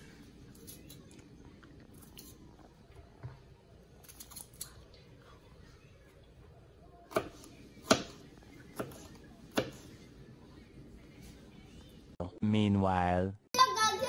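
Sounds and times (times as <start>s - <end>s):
knife chopping on plastic board: 7.1s - 9.8s.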